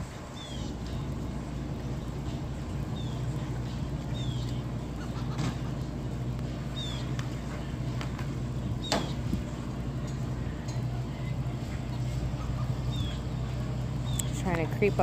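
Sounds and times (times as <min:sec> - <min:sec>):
boat engine idling: 0:00.0 - 0:15.0
bird chirps: 0:04.1 - 0:05.2, 0:12.8 - 0:13.4.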